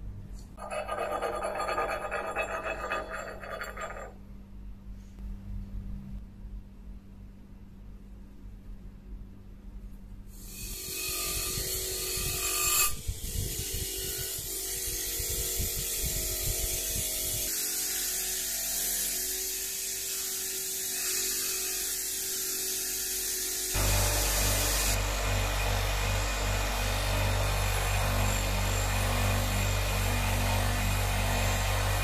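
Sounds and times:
bench grinder grinding metal: 0:00.6 - 0:04.1, 0:20.3 - 0:32.0.

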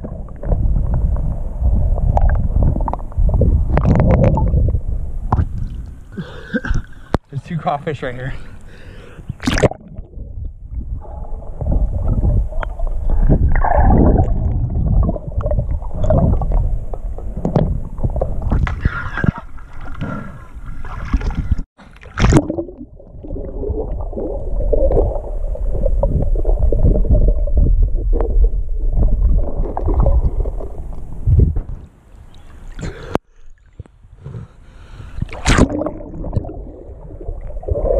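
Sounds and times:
muffled underwater stream gurgling: 0:00.0 - 0:07.2, 0:08.0 - 0:37.9.

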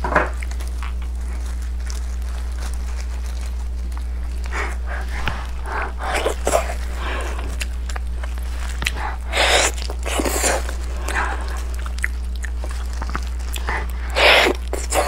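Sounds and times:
low electrical hum: 0:00.0 - 0:15.0
wet handling and rustling: 0:00.0 - 0:15.0.

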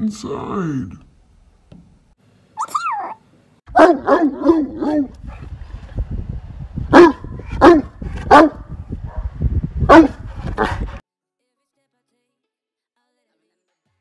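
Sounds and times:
dog barking: 0:03.7 - 0:05.4, 0:06.9 - 0:10.8.

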